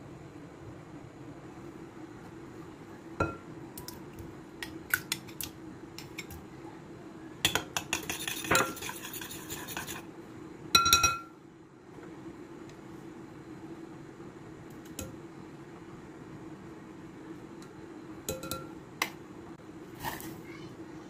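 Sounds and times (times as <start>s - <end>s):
metal spoon clinking on glass bowl: 10.8s - 11.3s, 18.3s - 18.7s.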